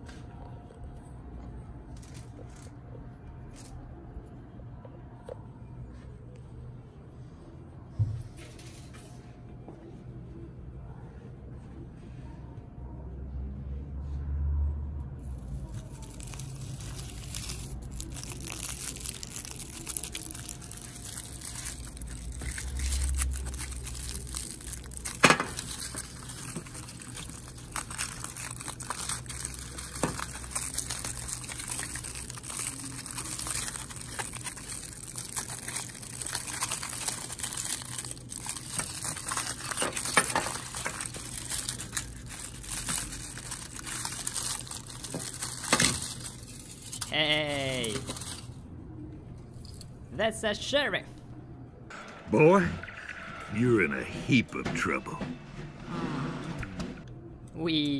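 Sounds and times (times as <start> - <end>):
aluminium foil crinkling: 15.3 - 48.6.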